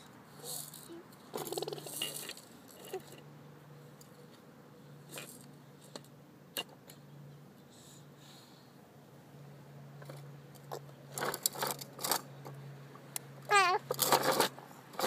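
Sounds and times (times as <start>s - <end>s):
toddler grunting or babbling: 13.5s - 13.9s.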